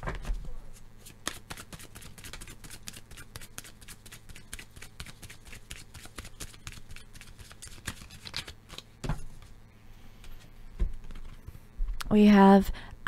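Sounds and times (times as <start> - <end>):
cards being shuffled: 1.0 - 9.5, 11.0 - 11.4.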